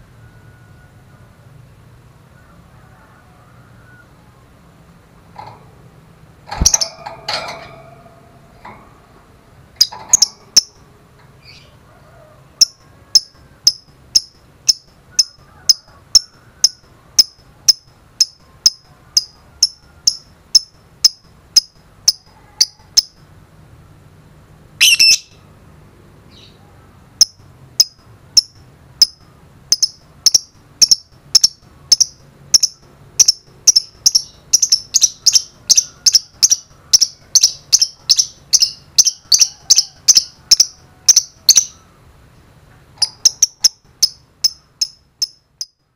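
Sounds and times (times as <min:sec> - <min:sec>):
lovebird chirping: 0:06.5 - 0:08.7, 0:09.8 - 0:11.8, 0:12.6 - 0:23.2, 0:24.8 - 0:25.4, 0:27.2 - 0:41.9, 0:43.0 - 0:45.8
harsh bird call: 0:24.8 - 0:25.4.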